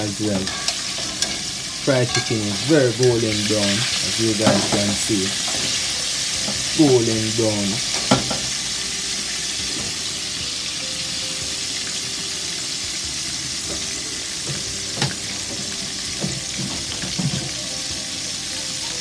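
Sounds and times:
chicken frying in hot oil: 0.0s - 19.0s.

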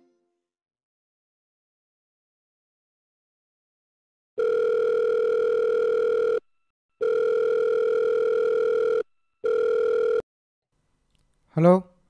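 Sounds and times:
telephone ringback tone: 4.4s - 6.4s, 7.0s - 10.2s.

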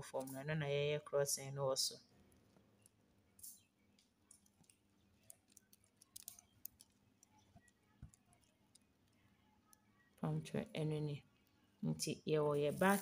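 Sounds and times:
plastic beads clicking: 2.8s - 9.9s.

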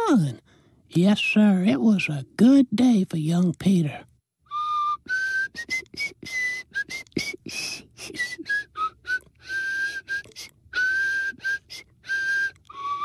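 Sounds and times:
man whistling a slow tune: 4.4s - 13.0s.

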